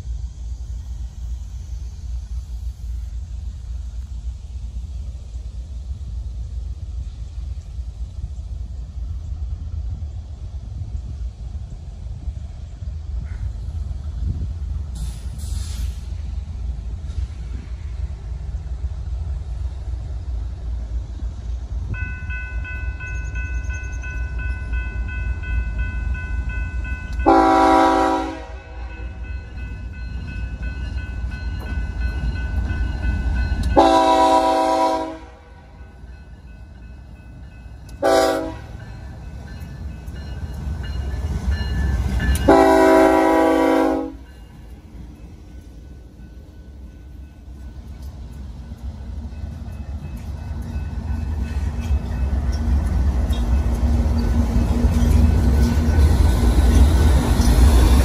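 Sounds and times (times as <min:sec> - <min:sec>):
low rumble of locomotives: 0:00.0 - 0:58.0
train air horn blasts: 0:27.2 - 0:29.3, 0:33.7 - 0:35.8, 0:38.0 - 0:38.8, 0:42.4 - 0:44.3.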